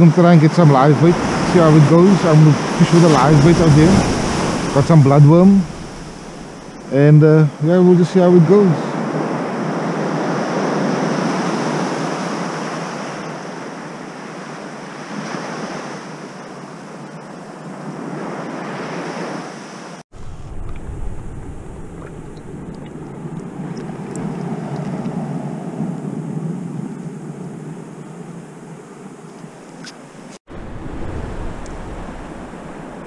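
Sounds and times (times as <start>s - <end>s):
sea surf washing in: 0.0s - 17.0s, 17.6s - 33.0s
low rumble: 3.0s - 7.0s, 20.1s - 25.1s.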